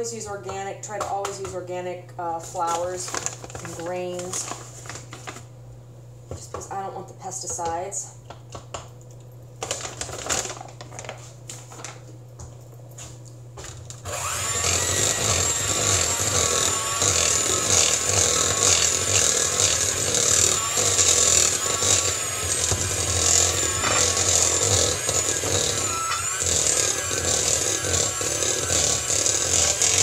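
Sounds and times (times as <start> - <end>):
electric mixer motor humming: 14.0 - 30.0.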